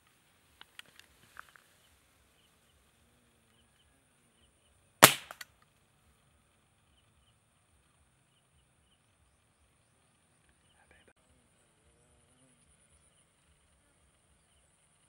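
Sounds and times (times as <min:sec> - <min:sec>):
dart gun crack: 0:05.0 - 0:05.5.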